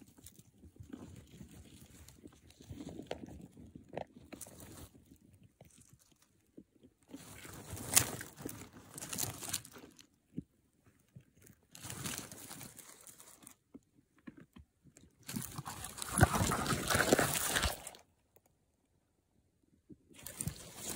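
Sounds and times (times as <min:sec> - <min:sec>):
animals rustling through dry soil: 0:00.0 - 0:13.7, 0:15.2 - 0:18.0, 0:20.2 - 0:20.9.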